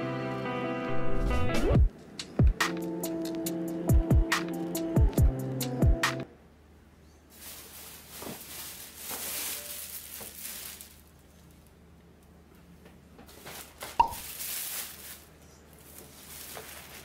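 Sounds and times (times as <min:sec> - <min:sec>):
plastic bag rustling and crinkling: 0:07.3 - 0:12.0, 0:13.2 - 0:17.0.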